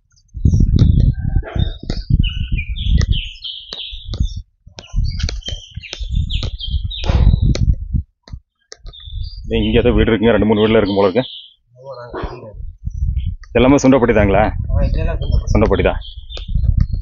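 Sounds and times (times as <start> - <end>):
small birds chirping and whistling: 0.1 - 8.0, 8.6 - 17.0.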